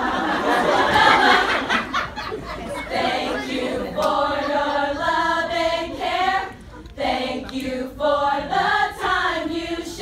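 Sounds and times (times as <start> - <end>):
women singing in unison: 2.9 - 10.0.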